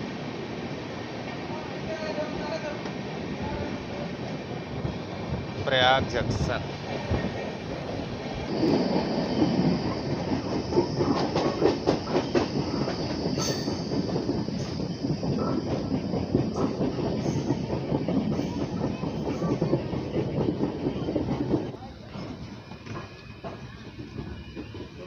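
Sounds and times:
train wheels rumbling and clacking: 0.3 - 25.0
high wheel squeal: 8.5 - 15.6.

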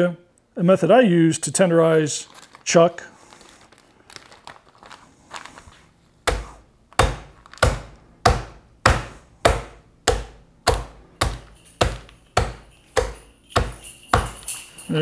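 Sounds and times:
meat pounder thuds: 6.2 - 14.5.

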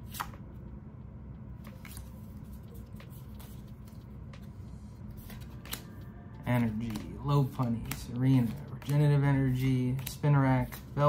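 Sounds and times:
low steady hum: 0.0 - 11.0
trading cards sliding: 1.6 - 11.0
light card clicks: 6.6 - 10.8.

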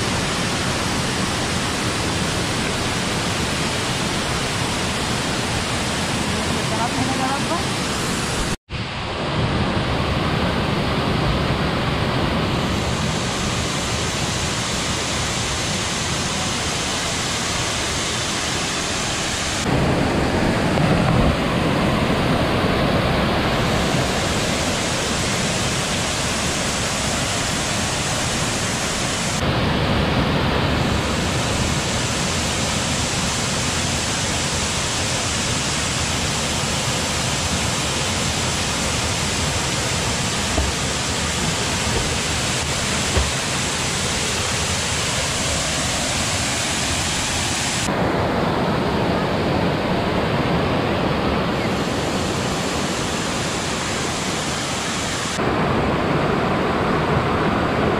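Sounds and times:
waterfall pouring into a pool: 23.2 - 47.9.

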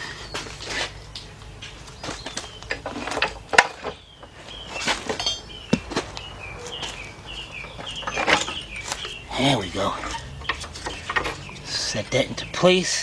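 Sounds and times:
bird chirping: 1.2 - 13.0
metal knocks and clinks: 5.1 - 5.6, 7.5 - 9.2, 9.9 - 11.6.

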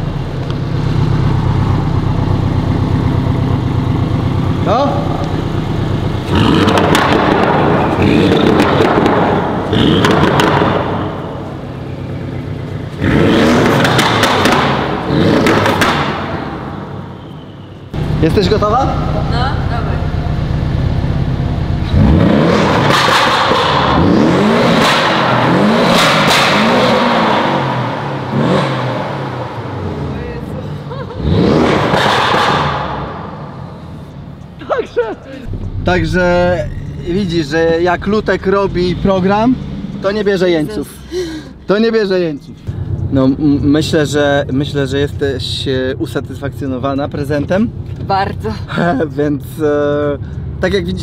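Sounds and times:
exhaust popping and crackling: 0.0 - 17.0, 18.0 - 30.4, 31.1 - 34.7, 35.4 - 40.1
car engine revving: 0.0 - 34.7, 35.4 - 41.0
exhaust pops and crackles: 6.4 - 11.2, 13.5 - 16.4.

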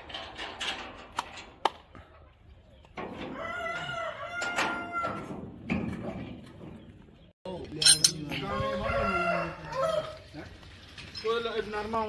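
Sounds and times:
rooster crowing: 3.3 - 5.2, 8.3 - 10.2.

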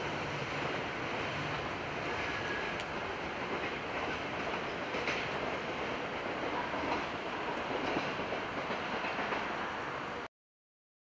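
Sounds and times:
train wheels rumbling on track: 0.0 - 10.3
faint clicks: 2.5 - 3.0.

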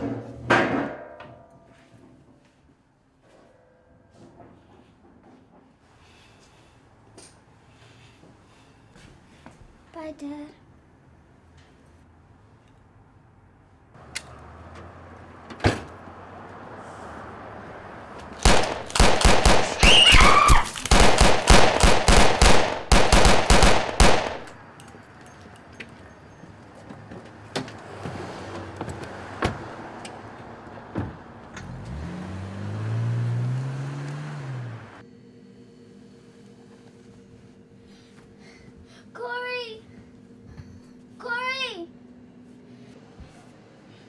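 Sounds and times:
rapid gunshots: 18.4 - 24.5
car engine revving: 31.2 - 35.0.

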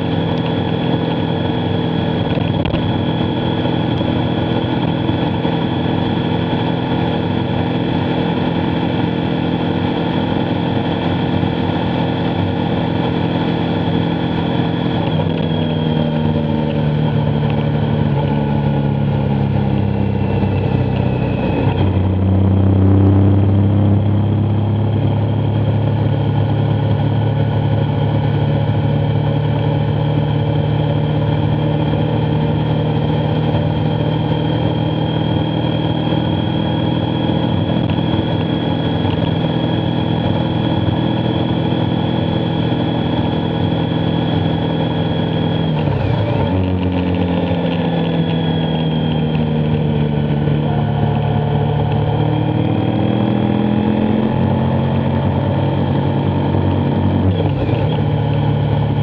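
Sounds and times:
motorcycle engine running: 0.0 - 59.0
steady rush of noise: 30.5 - 59.0.

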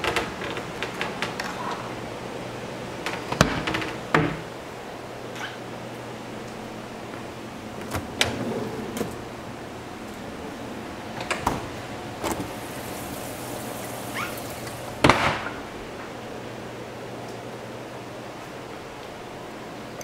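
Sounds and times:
low steady hum: 0.0 - 20.0
cabinet doors and drawers clunking: 3.0 - 4.5, 7.7 - 9.4, 11.1 - 13.2.

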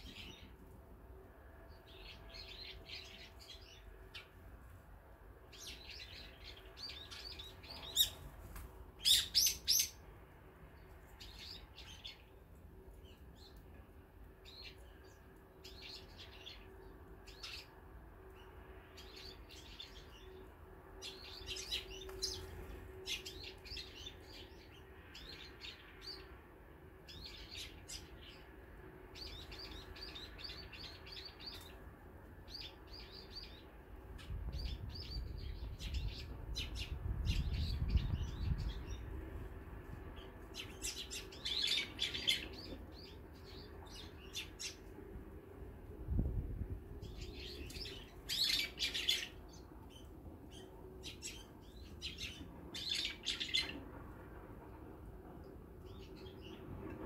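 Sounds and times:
small birds chirping: 5.4 - 10.0, 10.7 - 13.7, 14.4 - 26.4, 29.2 - 31.8, 32.4 - 39.3, 40.2 - 44.9, 47.0 - 53.8.

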